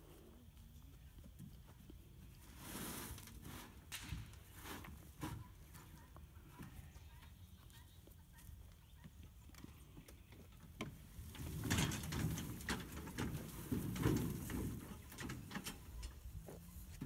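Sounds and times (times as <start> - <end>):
dump cart rattling and clanking: 10.9 - 16.3.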